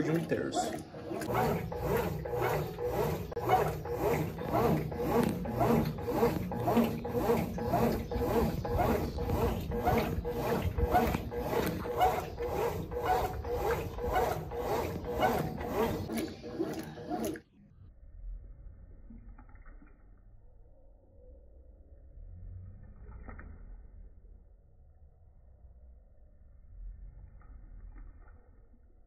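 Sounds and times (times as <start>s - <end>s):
washing machine agitator sloshing: 0.0s - 17.5s.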